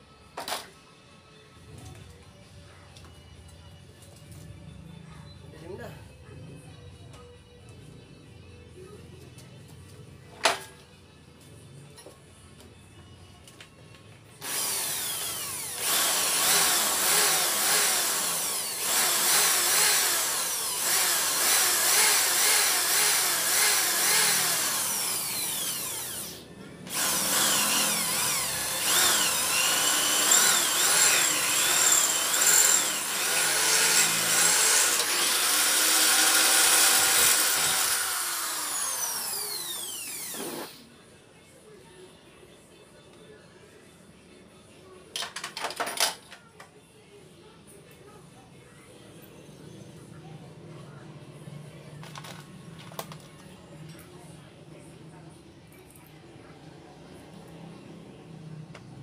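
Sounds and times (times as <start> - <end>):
electric drill motor whining: 14.4 - 40.8.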